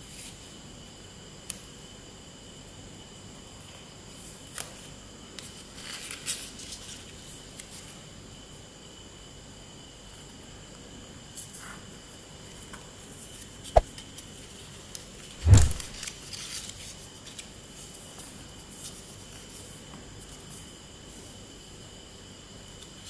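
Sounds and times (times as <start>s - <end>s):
sharp click: 15.4s - 16.0s
thump: 15.4s - 16.0s.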